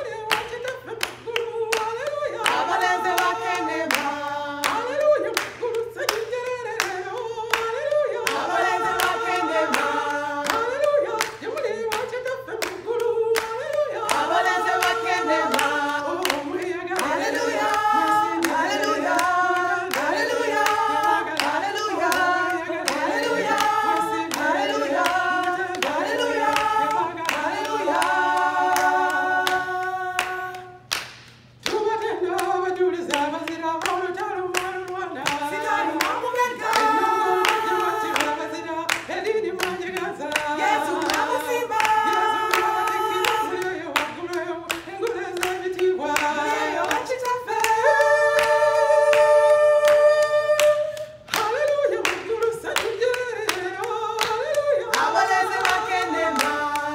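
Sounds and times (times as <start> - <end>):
women singing together: 0.0 - 56.9
hands clapping: 0.3 - 56.9.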